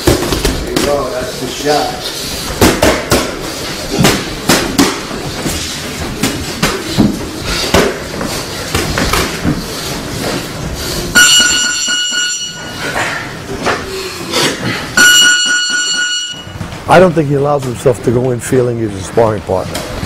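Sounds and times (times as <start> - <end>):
boxing gloves punching: 2.5 - 5.5
round timer buzzer: 15.0 - 16.6.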